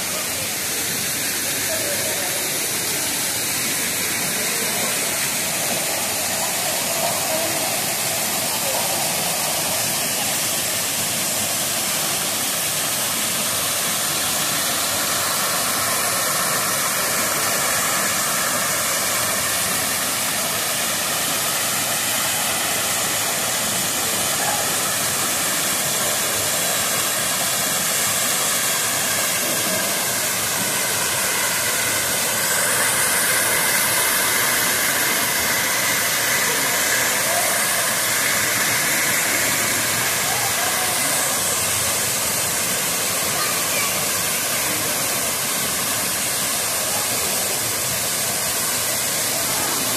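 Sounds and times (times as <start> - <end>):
waterfall rushing: 0.0 - 49.9.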